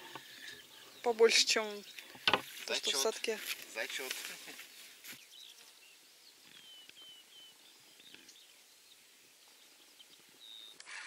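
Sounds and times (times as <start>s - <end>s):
faint bird chirps and whistles: 5.2s - 10.8s.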